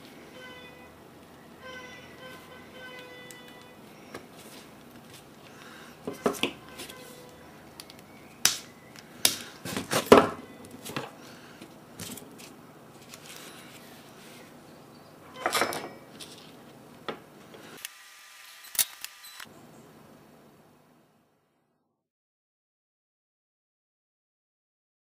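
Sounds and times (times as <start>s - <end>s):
rustling: 10.7s - 14.6s.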